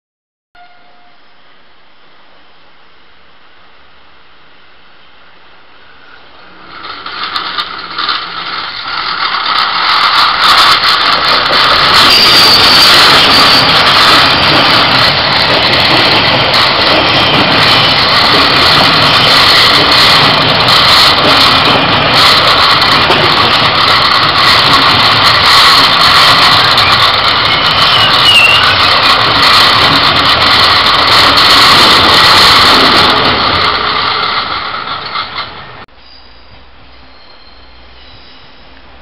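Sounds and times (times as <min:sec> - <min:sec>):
diesel train engines: 0:00.6 - 0:39.0
train wheels on rails: 0:05.1 - 0:39.0.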